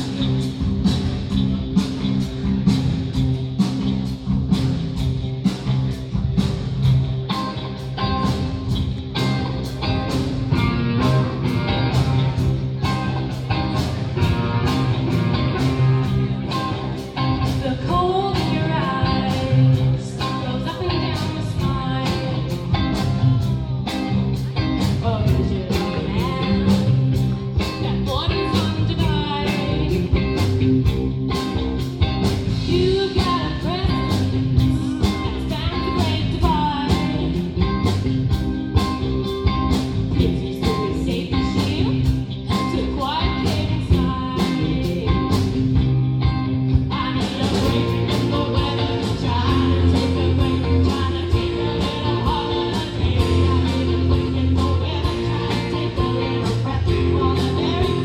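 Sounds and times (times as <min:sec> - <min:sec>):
live band playing: 0:00.0 - 0:58.0
women singing: 0:17.5 - 0:24.0, 0:24.8 - 0:27.0, 0:32.6 - 0:37.4, 0:46.8 - 0:58.0.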